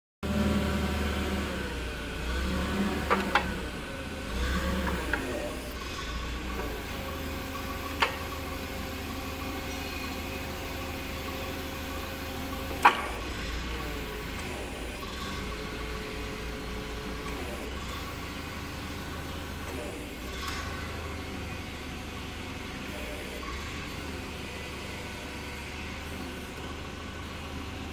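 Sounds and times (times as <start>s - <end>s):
forklift engine running: 0.2s - 27.9s.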